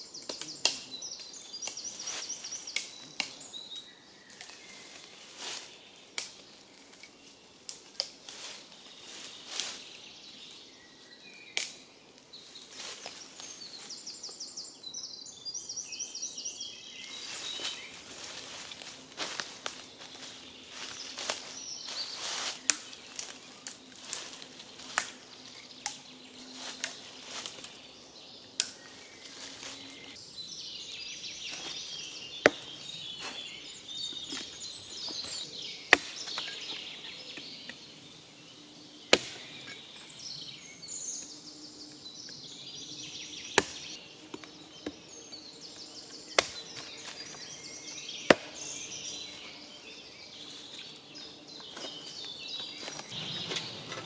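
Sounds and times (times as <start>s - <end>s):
birds singing: 0.0s - 54.0s
hatchet chopping branch: 32.4s - 32.7s, 35.9s - 36.8s, 39.1s - 39.8s, 43.6s - 45.0s, 46.4s - 47.3s, 48.3s - 48.7s.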